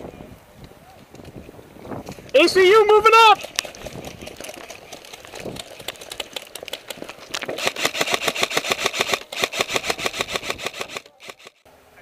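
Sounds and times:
gearbox whirring: 7.4s - 11.6s
airsoft rifle firing full auto: 7.6s - 11.6s.

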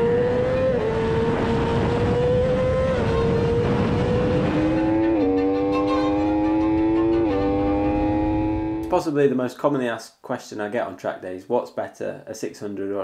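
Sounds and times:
wind rush: 0.0s - 8.8s
motorcycle engine at high revs: 0.0s - 8.9s.

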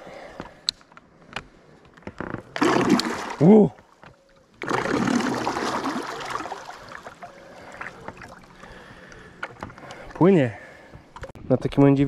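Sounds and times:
propeller churning water: 2.6s - 3.5s, 4.6s - 10.2s.

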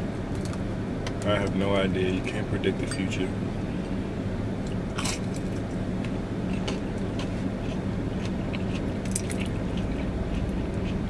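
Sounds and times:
steady low hum: 0.0s - 11.0s
person chewing food: 4.7s - 11.0s.

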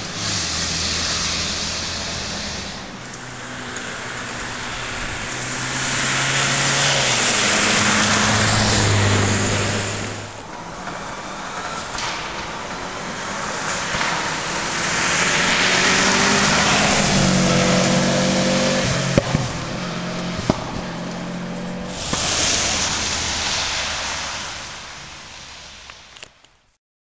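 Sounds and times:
rally car engine passing: 0.0s - 25.9s
tyres on gravel: 0.0s - 26.5s
engine sharp pops: 11.7s - 23.7s.

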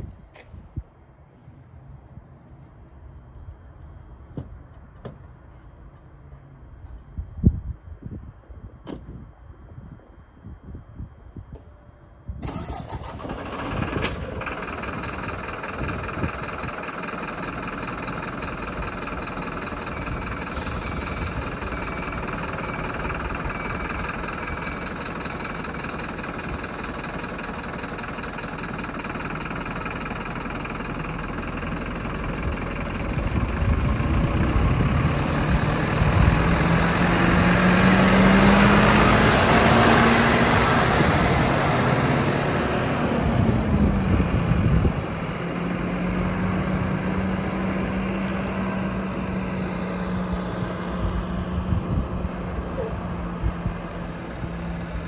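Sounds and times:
diesel truck engine running: 12.4s - 55.0s.

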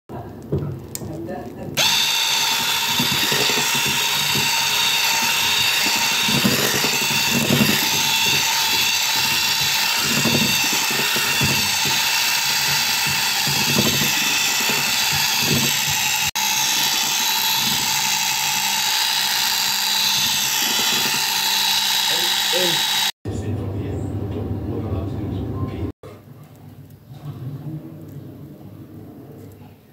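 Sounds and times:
electric hand mixer whirring: 1.8s - 23.2s.

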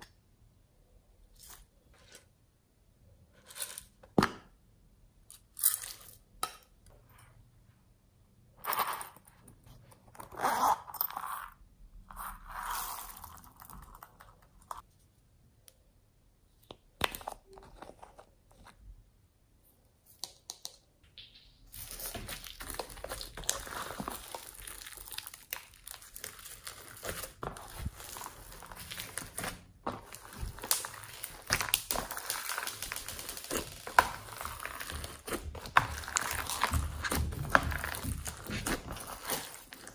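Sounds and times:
slime crunching and crackling: 21.7s - 39.9s.

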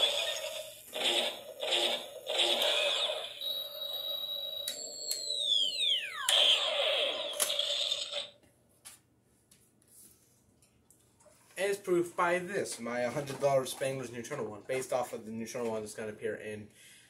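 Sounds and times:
toy blaster electronic effect: 0.0s - 8.4s.

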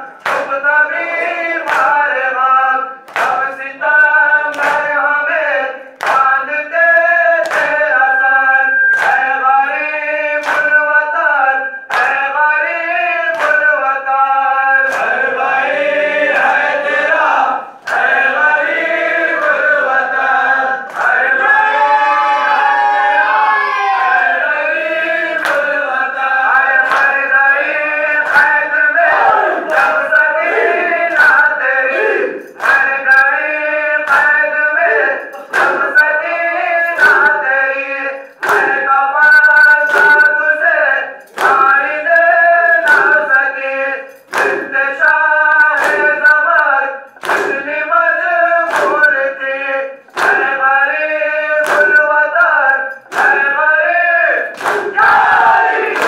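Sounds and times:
men singing in unison: 0.0s - 56.0s
hands slapping chests: 1.2s - 2.0s, 3.1s - 3.5s, 4.5s - 5.0s, 6.0s - 6.4s, 7.4s - 7.8s, 10.4s - 10.8s, 14.8s - 15.2s, 25.4s - 25.8s, 26.8s - 27.2s, 28.2s - 33.0s, 35.3s - 35.9s, 38.4s - 38.8s, 39.9s - 40.3s, 41.3s - 41.8s, 42.8s - 43.2s, 44.2s - 44.7s, 45.7s - 46.1s, 47.2s - 47.6s, 48.7s - 49.1s, 50.1s - 50.6s, 51.6s - 52.0s, 53.1s - 53.5s, 54.5s - 56.0s.

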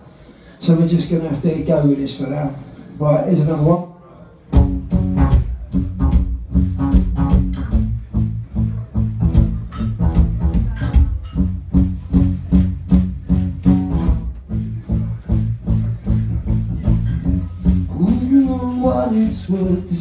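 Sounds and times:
guitar strumming: 4.6s - 20.0s.

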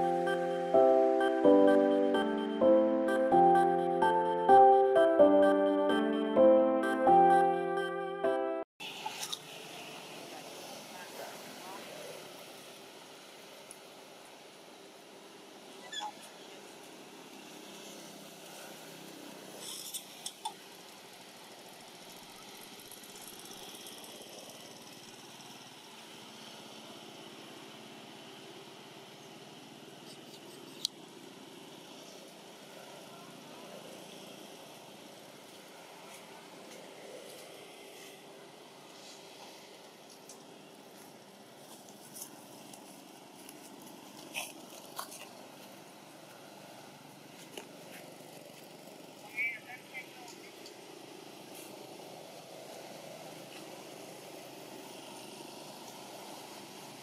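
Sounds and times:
faint outdoor hum and hiss: 8.8s - 57.0s.

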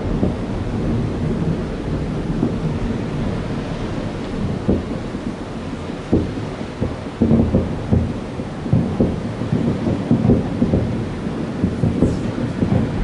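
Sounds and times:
firework shells booming: 4.4s - 13.0s.

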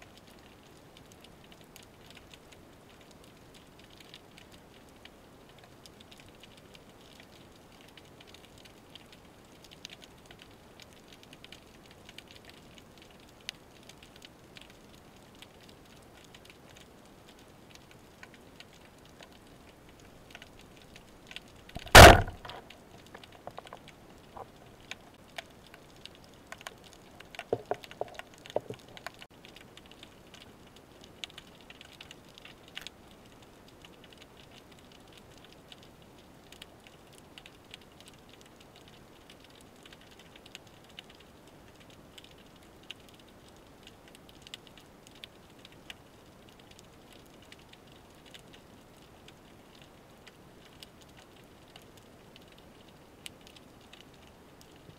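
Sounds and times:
underwater clicks crackling: 15.6s - 33.0s
loud sharp crack underwater: 21.8s - 24.4s, 27.4s - 28.8s.

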